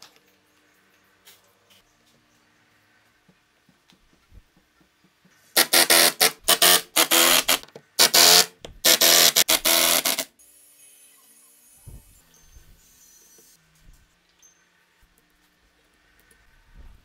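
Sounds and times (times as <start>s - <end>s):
impact driver driving screws: 5.6s - 10.3s.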